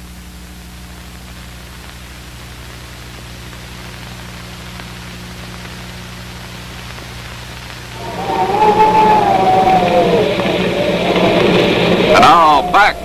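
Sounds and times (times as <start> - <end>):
steady hiss: 0.0 - 13.0
low hum: 7.9 - 13.0.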